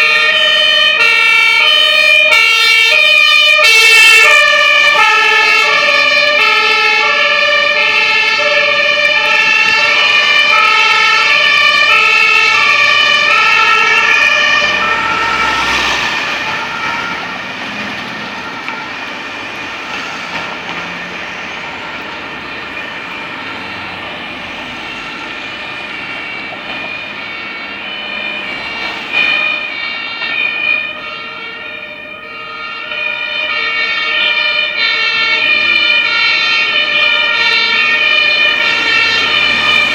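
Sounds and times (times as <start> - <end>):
street traffic noise: 0.0 - 39.9
two-tone fire engine sirens: 0.0 - 39.9
vehicle rushing past: 11.1 - 30.2, 34.4 - 39.9.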